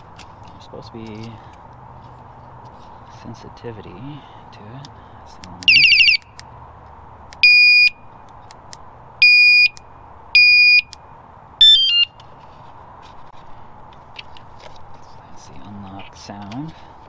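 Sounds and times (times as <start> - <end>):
warbling alarm chirp: 10.4 - 11.0, 11.6 - 12.2
electronic beeps: 11.6 - 12.1
falling chirp of stepped tones: 11.6 - 12.2.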